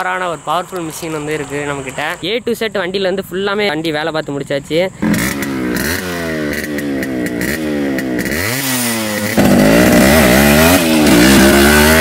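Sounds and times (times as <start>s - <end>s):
motorcycle engine revving: 5.0s - 12.0s.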